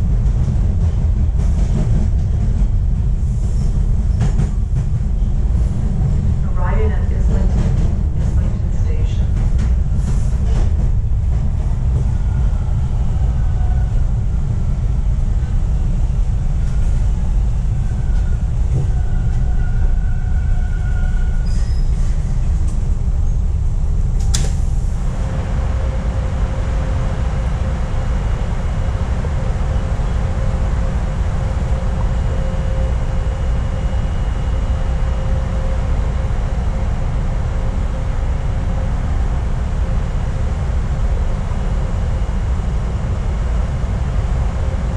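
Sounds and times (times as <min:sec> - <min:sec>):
subway train running: 0:00.0 - 0:44.9
faint squeals: 0:17.8 - 0:22.2
low steady hum: 0:22.6 - 0:44.9.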